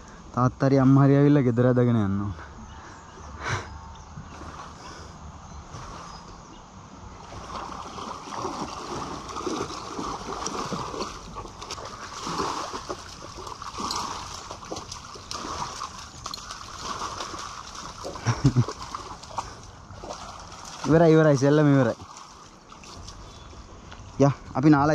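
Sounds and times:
dog splashing in water: 0:07.2 - 0:23.3.

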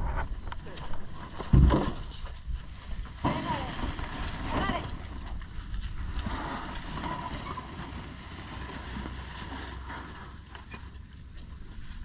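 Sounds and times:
wind rumbling on microphone: 0:00.0 - 0:09.4.

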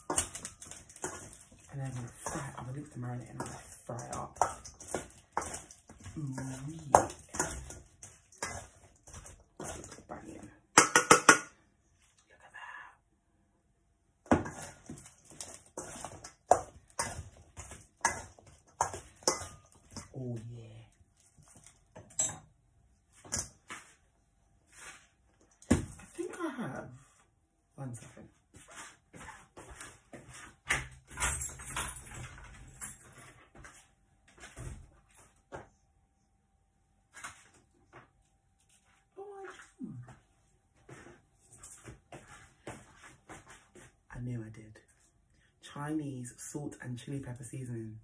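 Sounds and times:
metal spoon scraping steel bowl: 0:00.0 - 0:10.1, 0:14.4 - 0:20.1
things moved about in cupboard: 0:28.2 - 0:35.7.

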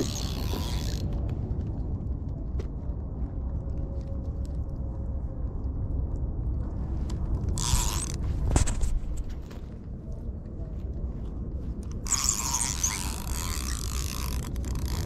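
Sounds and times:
fishing reel creaking and clicking: 0:00.0 - 0:01.2, 0:07.5 - 0:08.2, 0:12.0 - 0:15.0
steady low rumble: 0:00.0 - 0:15.0.

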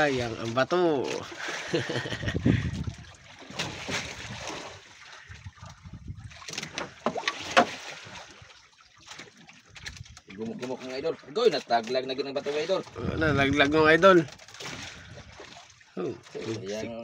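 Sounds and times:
water lapping around boat: 0:00.0 - 0:17.0
fishing tackle clicks and rustles: 0:09.0 - 0:16.9.

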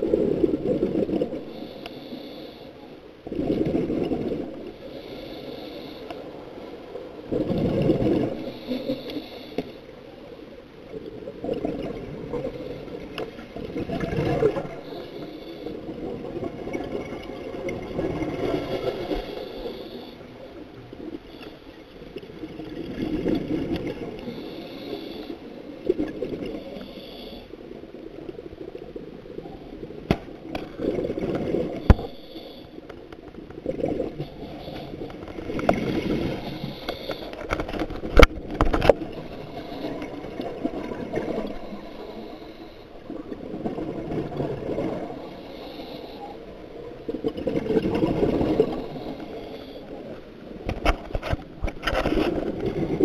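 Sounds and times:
regulator hiss: 0:04.8 - 0:06.4, 0:14.8 - 0:15.9, 0:24.2 - 0:25.6.

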